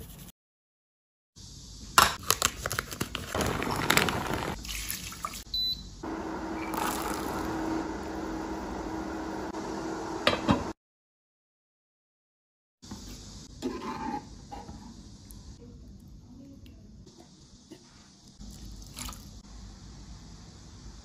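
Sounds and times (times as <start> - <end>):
water boiling and bubbling: 3.3 - 5.5, 6.6 - 9.4.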